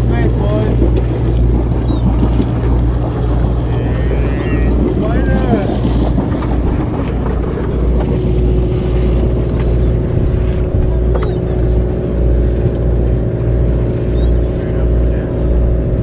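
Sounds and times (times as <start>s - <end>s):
boat engine droning: 0.0s - 16.0s.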